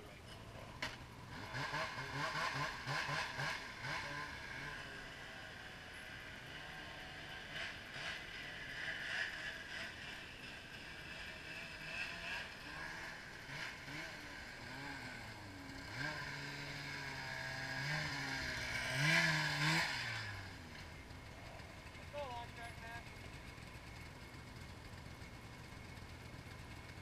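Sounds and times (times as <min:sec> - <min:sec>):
snowmobile engine running: 0:01.1 - 0:27.0.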